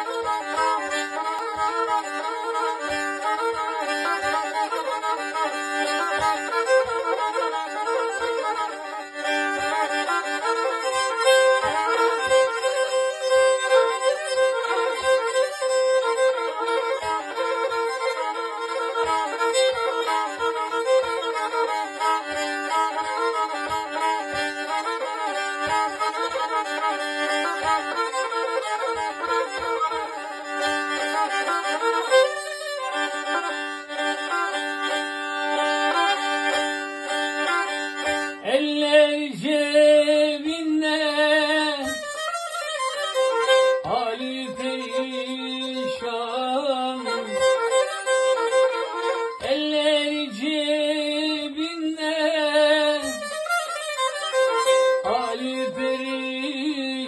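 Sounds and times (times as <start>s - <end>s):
kemenche fiddle playing folk tune: 0.0s - 57.0s
man singing: 38.4s - 42.1s, 43.8s - 47.9s, 49.4s - 53.4s, 55.0s - 57.0s.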